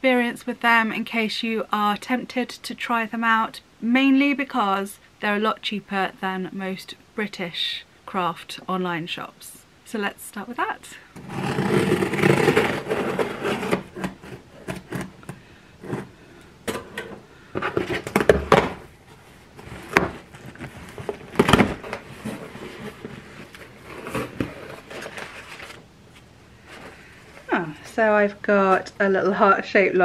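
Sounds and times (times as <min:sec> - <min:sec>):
paper packing rustling: 0:11.2 - 0:16.1, 0:17.6 - 0:27.6.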